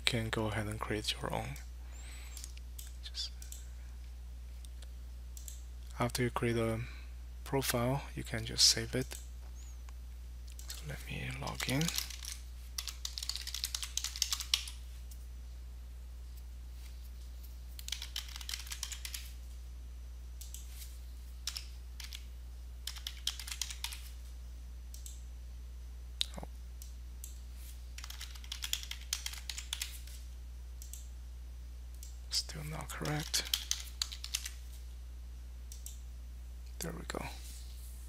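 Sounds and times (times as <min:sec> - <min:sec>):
low steady hum: 0:00.0 - 0:38.0
computer keyboard typing: 0:10.6 - 0:15.2, 0:17.8 - 0:19.4, 0:21.4 - 0:24.1, 0:28.0 - 0:30.2, 0:33.0 - 0:34.6.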